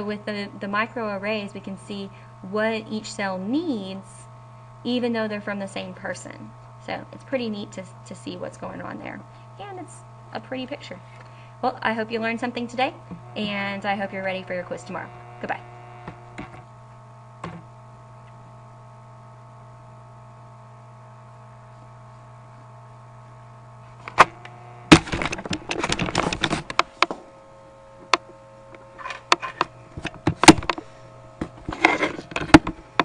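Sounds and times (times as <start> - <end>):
steady electrical hum: 0.0 - 33.0
microphone handling clicks and knocks: 16.0 - 16.7, 17.4 - 18.4, 24.0 - 27.3, 28.0 - 33.0.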